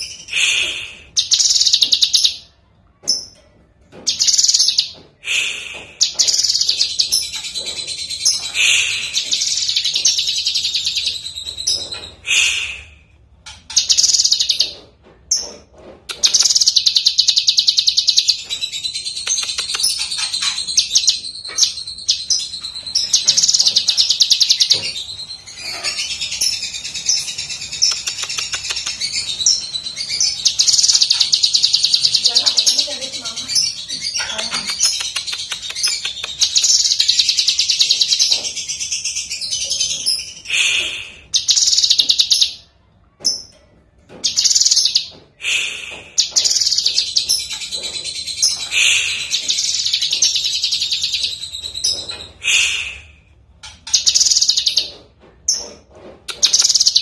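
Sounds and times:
bird singing trilled notes: 1.1s - 2.5s, 4.1s - 5.0s, 13.6s - 15.5s, 16.2s - 40.4s, 44.2s - 45.2s, 53.8s - 55.6s.

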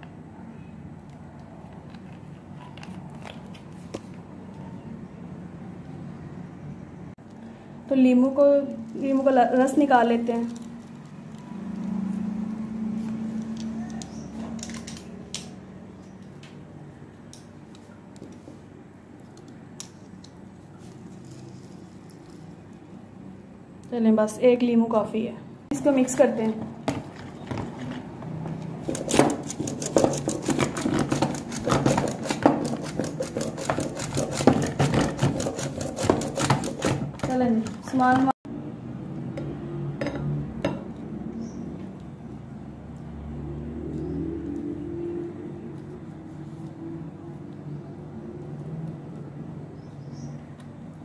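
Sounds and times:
lemon squeezer juicing: 27.3s - 37.2s
metal whisk scraping plastic bowl: 28.8s - 37.8s.

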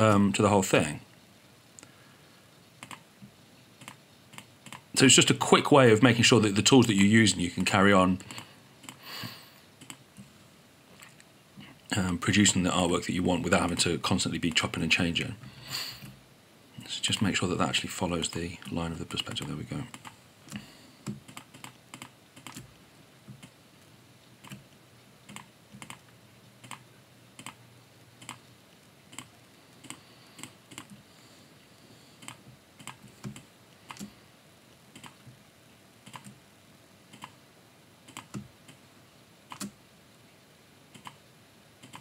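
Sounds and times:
mouse clicks: 2.8s - 3.0s, 3.8s - 4.8s
keyboard keys clicking: 21.0s - 22.6s.

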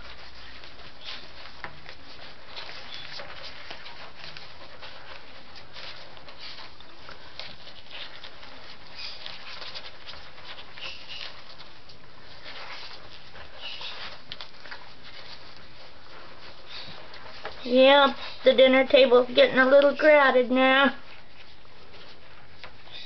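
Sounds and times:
puppies suckling clicks: 0.0s - 20.4s, 21.0s - 23.0s
paper rustling: 0.0s - 23.0s
puppy squeaks: 7.7s - 11.7s, 12.4s - 14.3s.

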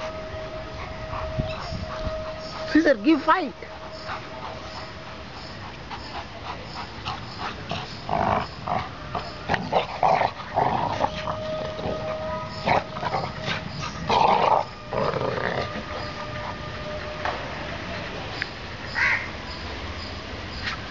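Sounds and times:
dogs growling while play-fighting: 3.8s - 16.2s.

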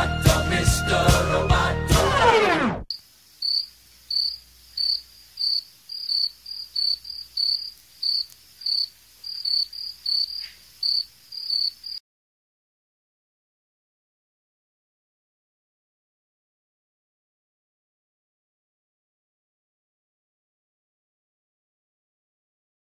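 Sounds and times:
cricket chirping: 2.9s - 12.0s.

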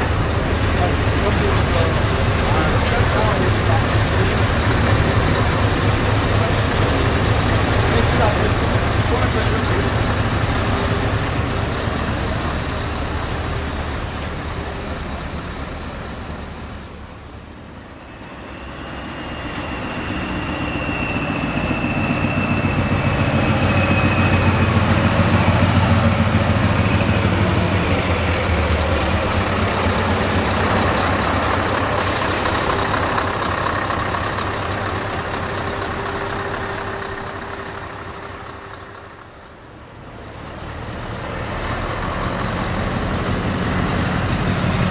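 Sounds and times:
diesel trucks passing: 0.0s - 44.9s
thin high whistle: 18.3s - 24.6s.

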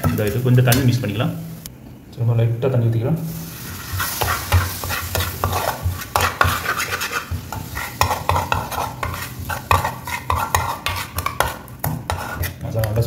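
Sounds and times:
food sizzling in a pan: 3.2s - 12.5s
metal spatula scraping a pan: 3.3s - 13.0s.

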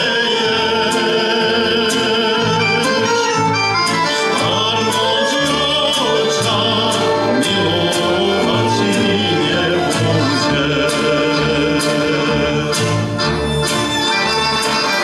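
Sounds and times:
man singing: 0.0s - 13.4s
accordion: 0.0s - 15.0s
double bass: 0.0s - 15.0s
violin: 0.0s - 15.0s.

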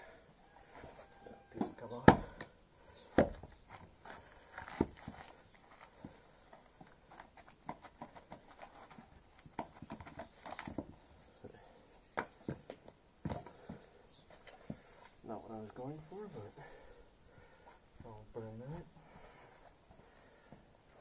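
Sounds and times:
axe chopping log: 2.0s - 2.5s, 3.1s - 3.5s.

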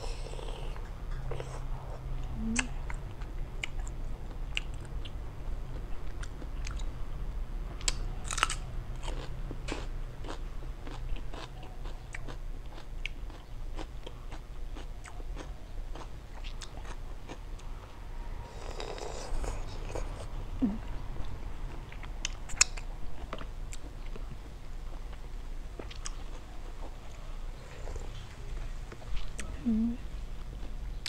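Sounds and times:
steady low hum: 0.0s - 31.0s
chewing and crunching: 7.8s - 17.8s, 18.4s - 29.6s.

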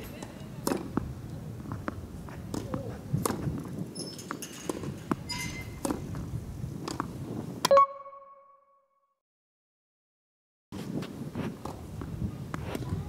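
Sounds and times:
tennis balls bouncing on court: 0.0s - 7.2s
tennis balls struck with rackets: 0.0s - 7.2s.

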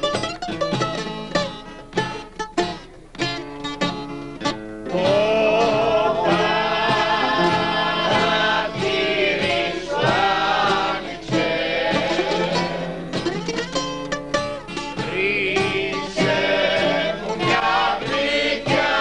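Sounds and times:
acoustic guitar: 0.0s - 19.0s
bouzouki: 0.0s - 19.0s
men singing: 4.9s - 13.0s, 15.0s - 19.0s.

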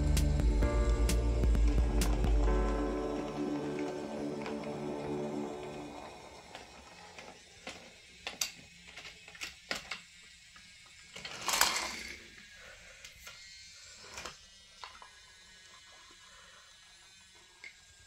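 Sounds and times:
toy train wheels clicking on track: 6.0s - 15.7s.

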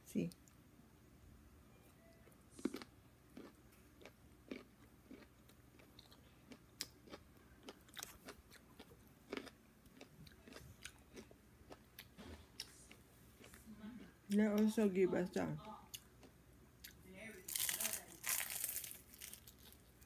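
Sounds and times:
person chewing food: 2.2s - 14.1s, 15.9s - 20.0s.

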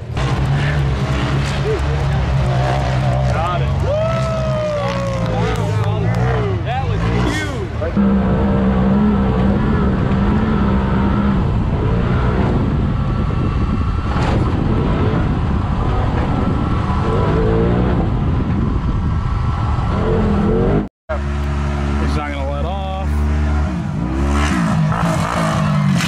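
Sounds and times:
off-road vehicle engine revving: 0.0s - 19.1s, 19.8s - 26.0s.

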